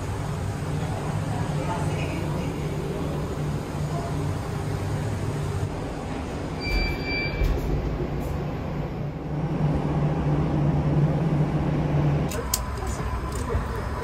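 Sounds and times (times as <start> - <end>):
low mechanical hum: 0.0 - 14.0
short electronic beep: 6.6 - 7.6.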